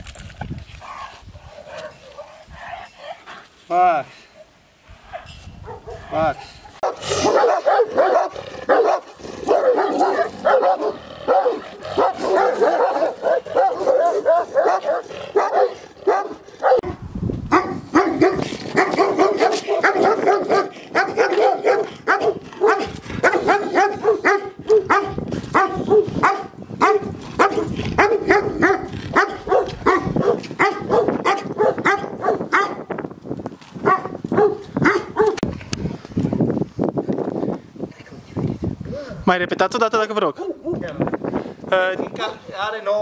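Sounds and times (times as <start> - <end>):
dogs barking: 5.1 - 16.9, 17.5 - 32.9, 33.8 - 35.4, 40.3 - 40.8.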